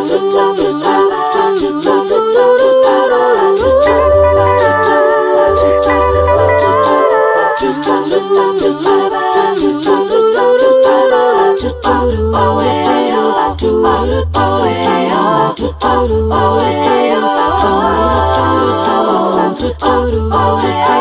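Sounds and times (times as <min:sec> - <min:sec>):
voices singing in harmony: 0:00.0 - 0:21.0
pulsing low bass line: 0:03.6 - 0:07.2, 0:15.6 - 0:16.8.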